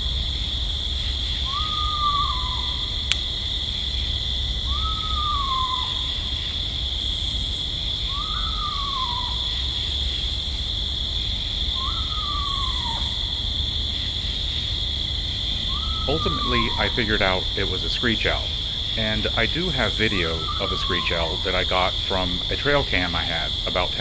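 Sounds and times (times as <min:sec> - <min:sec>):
insect chorus: 0:00.0 - 0:24.0
owl whinny calls: 0:01.3 - 0:03.0, 0:04.6 - 0:06.5, 0:08.0 - 0:09.8, 0:11.7 - 0:13.5, 0:15.5 - 0:23.4.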